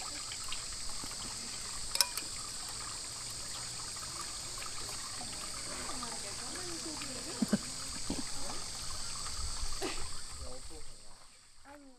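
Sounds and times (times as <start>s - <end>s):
high insect drone: 0.0s - 11.9s
running water trickle: 0.0s - 11.9s.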